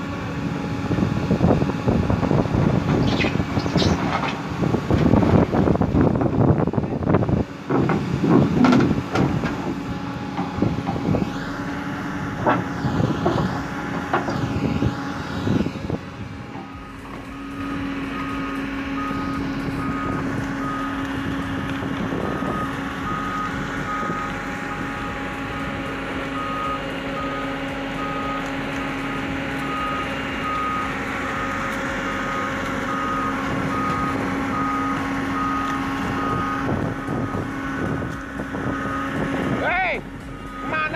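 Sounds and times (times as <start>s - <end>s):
excavator engine running: 0.0s - 40.9s
clattering knocks and scraping: 2.8s - 5.1s, 7.7s - 11.1s
travel alarm beeping: 16.6s - 17.5s, 18.1s - 21.0s, 22.4s - 25.7s, 32.1s - 37.4s, 40.3s - 40.9s.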